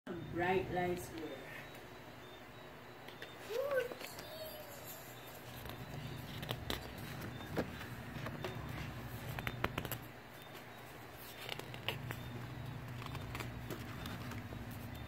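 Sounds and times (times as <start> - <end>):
low steady hum: 0.1 - 15.0
card pages tapping and clicking: 5.3 - 15.0.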